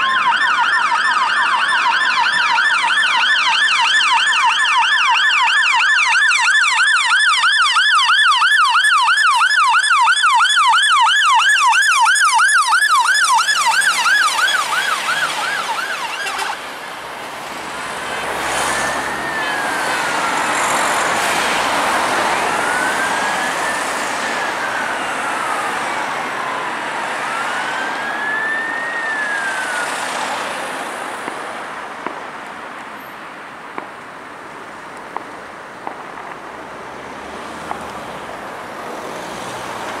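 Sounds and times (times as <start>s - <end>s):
siren fast yelp: 0.0s - 16.6s, 18.1s - 30.3s
siren slow wail: 0.0s - 31.4s
road traffic noise: 0.0s - 40.0s.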